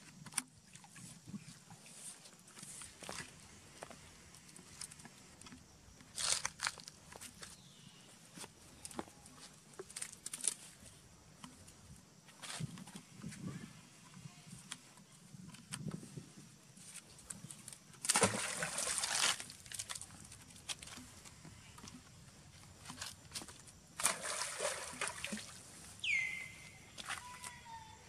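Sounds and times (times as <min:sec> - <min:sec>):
water splashing: 0:18.0 - 0:21.1, 0:24.0 - 0:27.2
monkey high call: 0:26.0 - 0:28.0.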